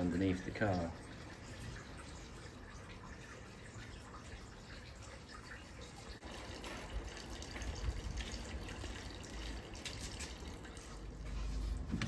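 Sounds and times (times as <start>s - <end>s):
small water splashes: 0.0s - 11.2s
water trickling and dripping: 0.0s - 12.0s.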